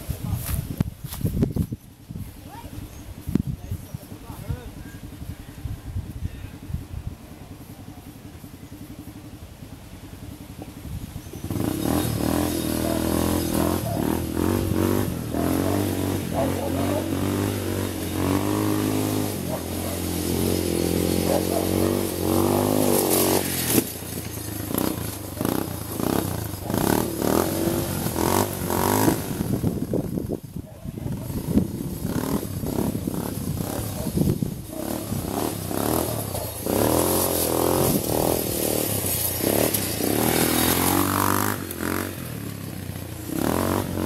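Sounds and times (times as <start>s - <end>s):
atv engine revving: 3.9s - 44.0s.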